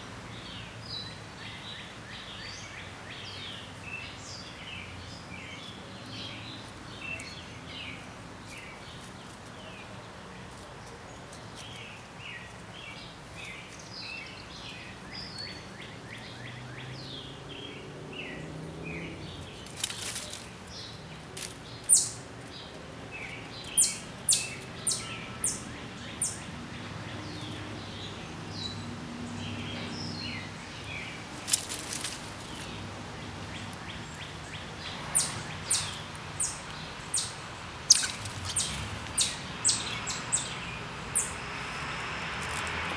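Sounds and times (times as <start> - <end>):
outdoor background noise: 0.0 - 42.9
small birds chirping: 0.0 - 42.9
loud sharp high bird chips: 23.6 - 25.6, 35.2 - 40.6.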